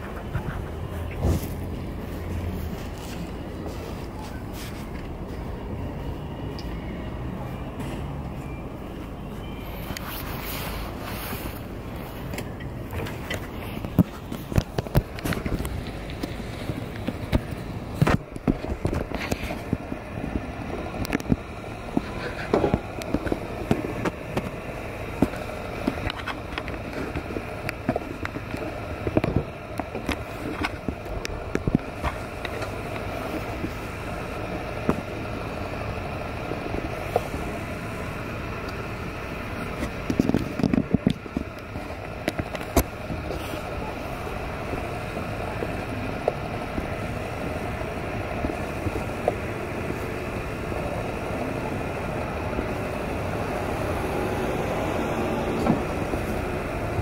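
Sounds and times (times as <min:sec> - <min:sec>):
street traffic hum: 0:00.0 - 0:57.0.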